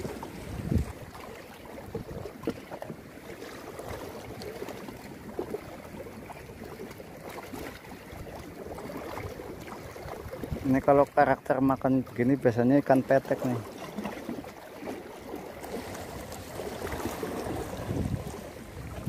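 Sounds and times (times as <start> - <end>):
wind noise on microphone: 0.0 - 1.1, 16.9 - 19.0
water lapping against concrete: 0.0 - 19.0.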